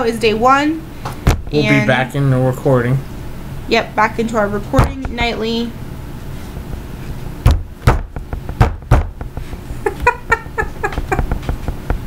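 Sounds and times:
sharp thumps: 1.1 - 1.6, 4.6 - 5.6, 6.6 - 9.6
woman laughing: 1.6 - 2.0, 9.8 - 11.5.

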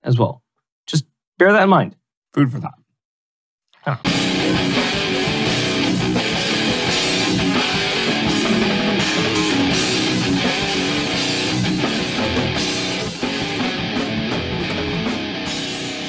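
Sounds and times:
guitar-driven rock music: 4.0 - 16.0.

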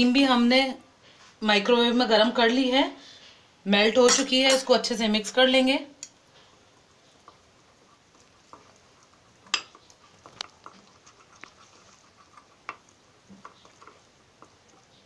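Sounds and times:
metal utensil tapping glass bowl: 4.0 - 4.8.

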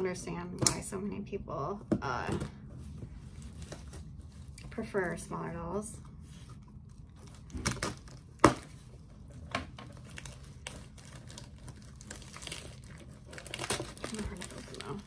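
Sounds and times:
package rustling and crinkling: 2.8 - 4.8, 6.4 - 15.0.

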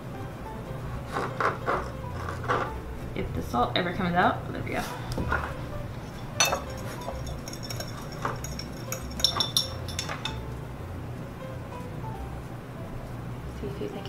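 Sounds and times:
spoon clinking against ceramic bowl: 6.2 - 10.4.

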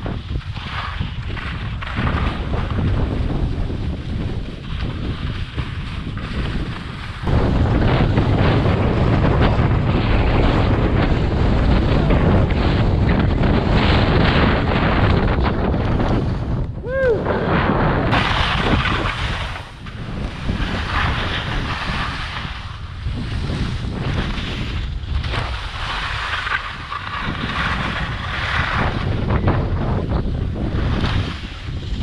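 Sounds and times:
skis scraping over snow: 0.0 - 16.6, 17.4 - 32.0
wind rushing over microphone: 0.0 - 32.0.

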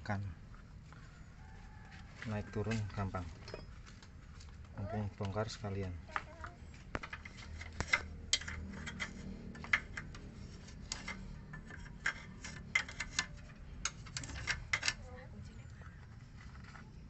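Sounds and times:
tool clicking on metal parts: 6.9 - 15.1.

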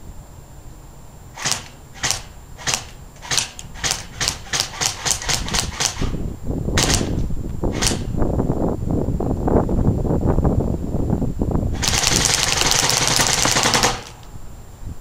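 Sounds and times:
low rumbling noise: 0.0 - 15.0
airsoft gun shots: 1.4 - 6.2, 6.8 - 8.2, 11.8 - 14.2.

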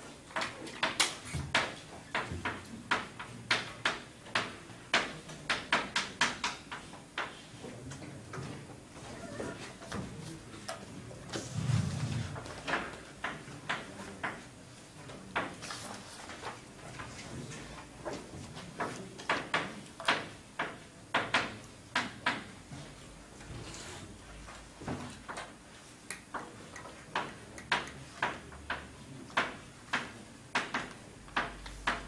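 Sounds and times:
chalk tapping and scratching on blackboard: 24.9 - 32.0.

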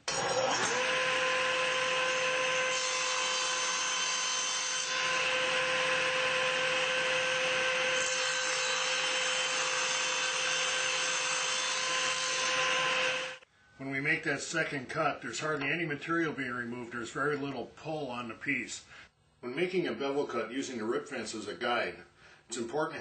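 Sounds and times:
saw blade cutting board: 0.0 - 13.4
table saw motor whine: 0.0 - 13.4.

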